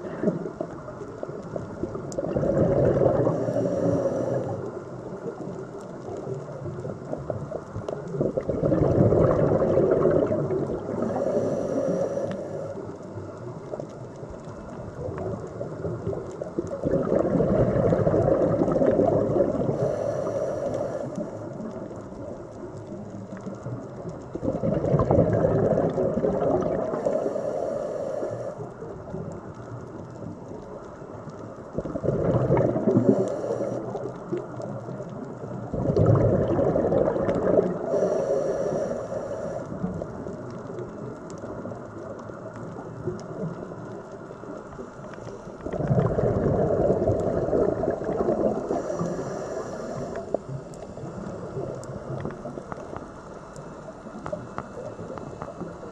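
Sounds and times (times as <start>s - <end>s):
bubbling exhalation underwater: 1.9s - 3.9s, 8.1s - 11.3s, 15.0s - 19.8s, 24.3s - 27.1s, 31.8s - 34.1s, 35.5s - 38.0s, 45.6s - 49.1s
regulator hiss: 3.2s - 4.8s, 11.0s - 12.9s, 19.6s - 21.6s, 26.8s - 28.8s, 33.0s - 34.0s, 37.8s - 39.9s, 48.5s - 55.9s.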